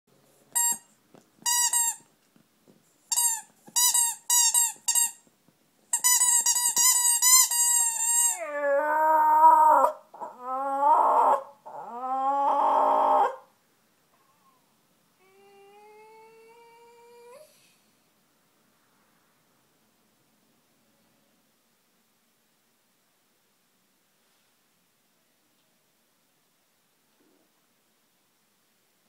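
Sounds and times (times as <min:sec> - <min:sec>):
squeaky toy squeaking: 0:00.6 - 0:02.0, 0:03.1 - 0:05.2, 0:05.9 - 0:08.4.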